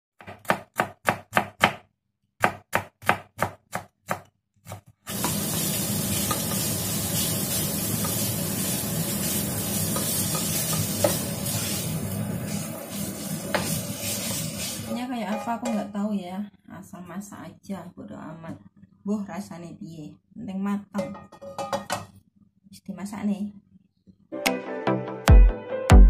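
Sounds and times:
knife chopping on wooden board: 0.2 - 4.9
meat sizzling in a frying pan: 5.1 - 15.0
spatula scraping pan: 5.1 - 16.0.

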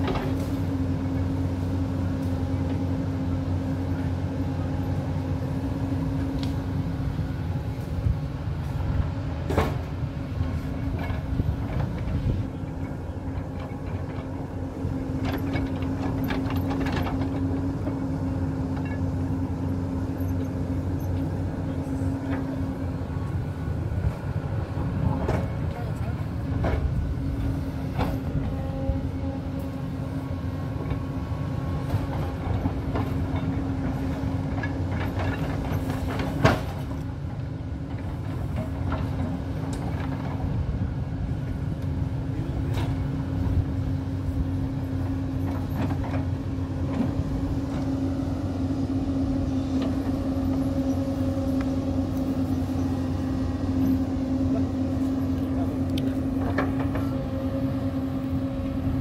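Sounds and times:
excavator diesel engine humming: 0.0 - 59.0.

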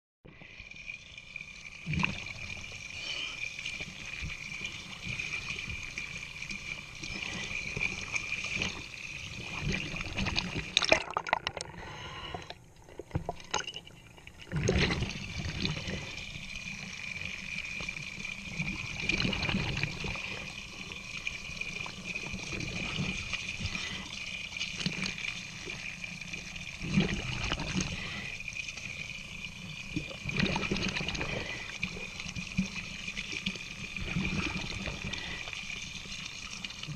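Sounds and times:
water pouring and splashing: 0.4 - 11.8, 12.9 - 36.9.

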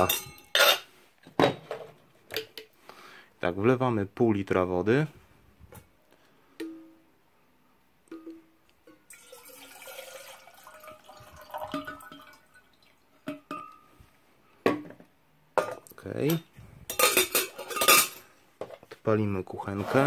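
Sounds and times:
water pouring into kettle: 9.1 - 13.1.

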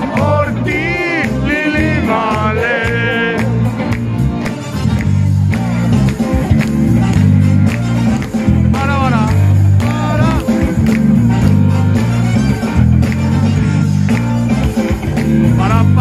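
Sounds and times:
pop-rock band playing: 0.0 - 16.0.

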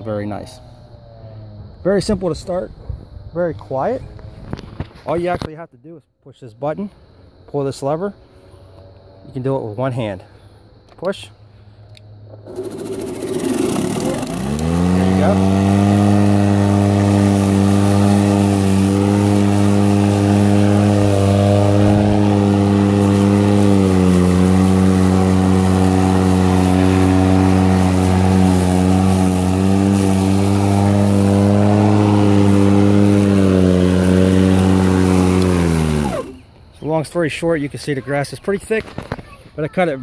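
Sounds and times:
lawn mower humming: 12.3 - 36.6.

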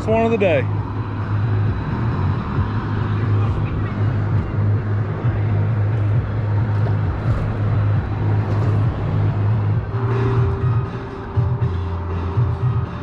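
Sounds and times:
road traffic rumble on bridge: 0.0 - 13.0.

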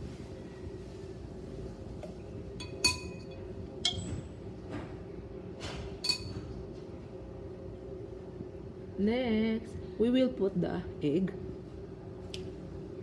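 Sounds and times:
steady low hum: 0.0 - 13.0
metal spoon clinking on pot: 2.6 - 4.0, 6.0 - 6.4.

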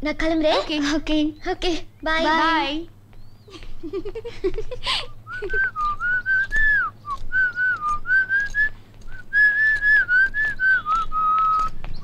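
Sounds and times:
person whistling a tune: 5.3 - 12.0.

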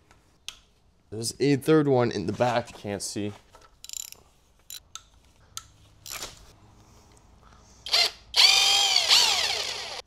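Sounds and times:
metallic clicks and taps of tools: 3.8 - 6.2
cordless drill burst: 7.9 - 10.0.

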